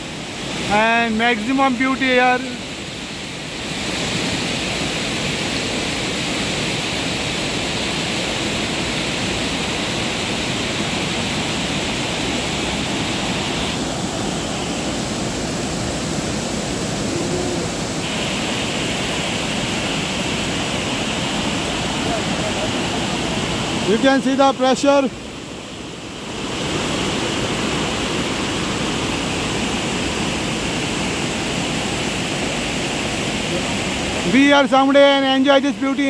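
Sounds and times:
waterfall rushing: 0:00.0 - 0:36.0
whitewater torrent rushing: 0:00.0 - 0:36.0.

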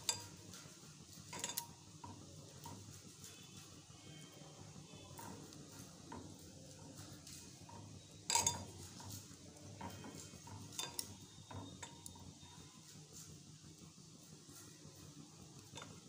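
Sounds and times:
spoon clinking on steel bowl: 0:01.2 - 0:01.8, 0:08.2 - 0:12.2.

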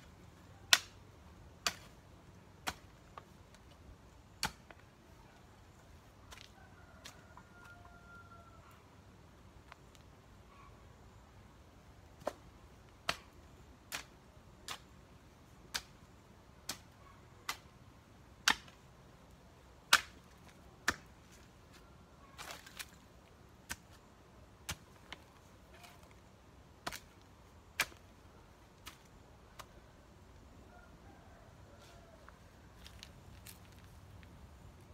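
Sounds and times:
hoe chopping into soil: 0:26.8 - 0:27.2, 0:27.8 - 0:28.1.

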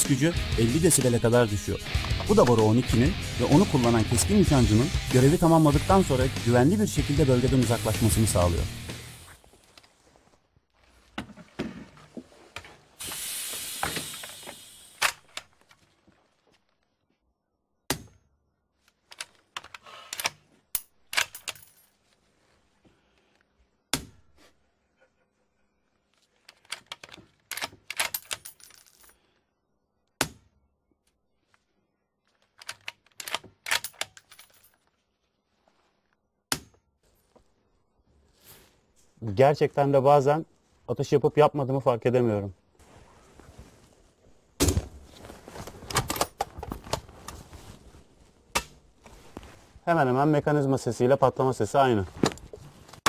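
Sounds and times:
rifle handling noise: 0:18.9 - 0:21.8, 0:26.4 - 0:28.8, 0:32.3 - 0:34.9, 0:45.7 - 0:47.4.

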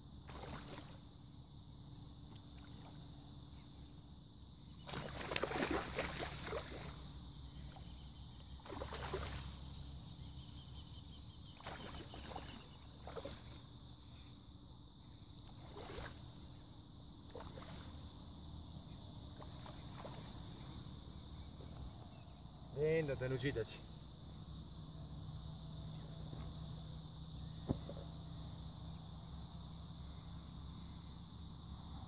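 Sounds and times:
fish splashing in water: 0:00.3 - 0:01.0, 0:04.8 - 0:07.1, 0:08.6 - 0:09.7, 0:11.5 - 0:13.7, 0:15.5 - 0:16.3, 0:17.3 - 0:18.0, 0:19.4 - 0:20.6.

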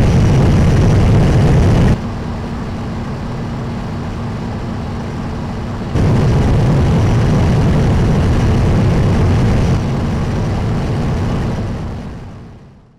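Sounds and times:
turbofan engine running: 0:00.0 - 0:12.9
air rushing: 0:05.9 - 0:12.3.

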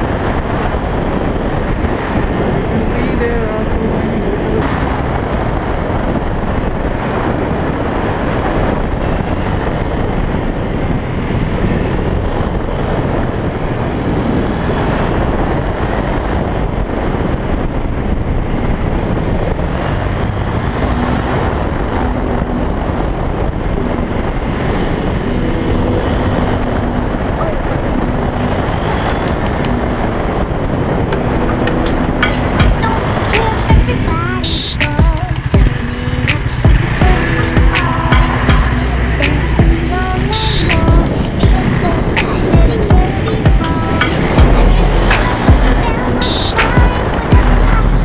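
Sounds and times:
motorcycle engine cruising: 0:00.0 - 0:48.0
wind rushing over microphone: 0:00.0 - 0:48.0.

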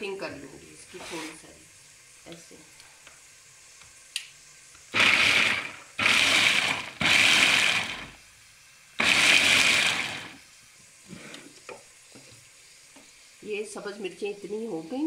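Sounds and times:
food chopper blades whirring: 0:04.9 - 0:08.2, 0:09.0 - 0:10.4.

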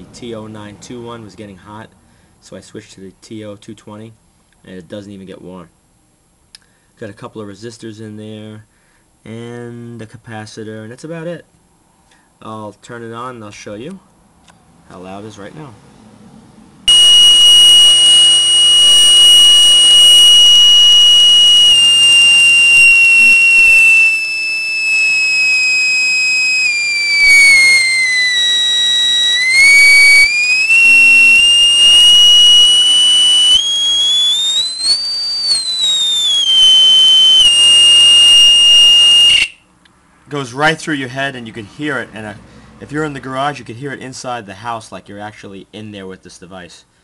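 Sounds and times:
piercing high-pitched siren tone: 0:16.9 - 0:39.6.

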